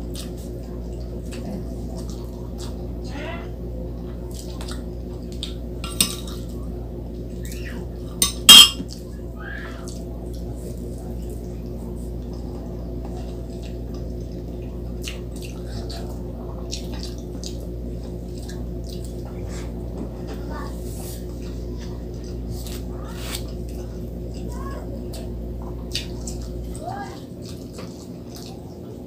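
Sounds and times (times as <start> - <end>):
close-up eating sounds: 0.0 - 29.0
steady low hum: 0.0 - 29.0
metal spoon clinking on dish: 8.2 - 8.8.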